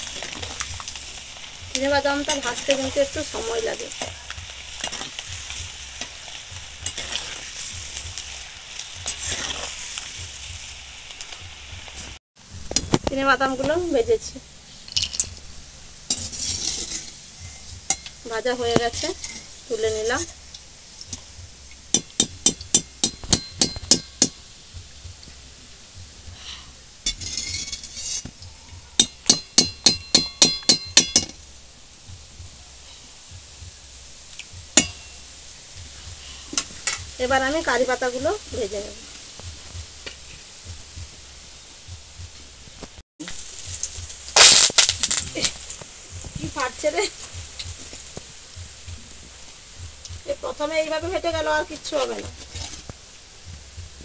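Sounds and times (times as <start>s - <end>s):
peanuts sizzling in hot oil: 0.0s - 54.0s
steel spoon scraping and clinking: 16.1s - 18.2s, 27.0s - 28.3s.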